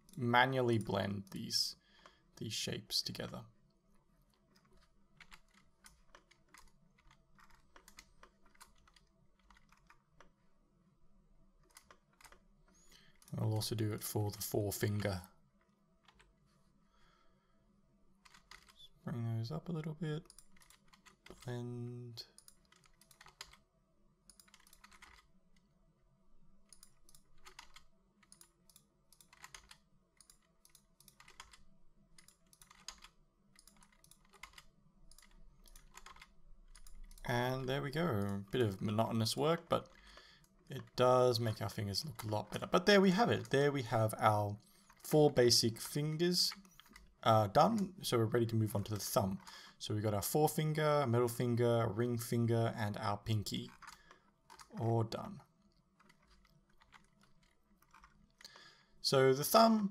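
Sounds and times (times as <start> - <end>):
low steady hum: 0.0 - 59.9
keyboard and mouse clicking: 4.5 - 10.3, 18.2 - 18.8, 20.2 - 21.5, 22.3 - 23.6, 24.3 - 25.7, 26.7 - 31.6, 32.2 - 37.3, 53.6 - 54.8, 55.7 - 58.8.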